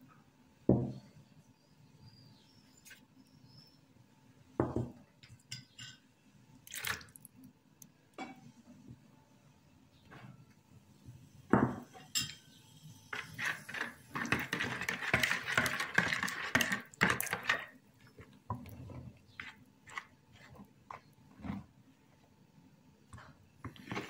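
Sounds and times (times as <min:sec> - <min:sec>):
spoon stirring and scraping a bowl: 0:11.8 - 0:12.5, 0:13.1 - 0:21.8, 0:23.2 - 0:24.0.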